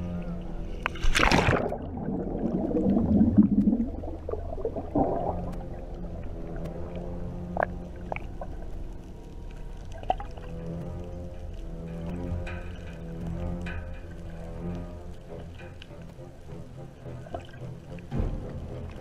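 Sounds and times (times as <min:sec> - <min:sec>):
small underwater clicks: 0:00.8 - 0:19.0
splash into water: 0:01.0 - 0:03.4
underwater bubbles gurgling: 0:01.0 - 0:10.6.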